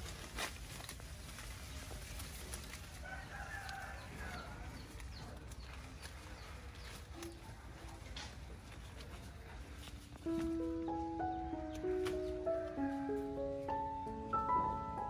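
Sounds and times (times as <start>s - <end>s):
leaves rustling and clicking: 0.0s - 15.0s
rooster crowing: 3.0s - 4.6s.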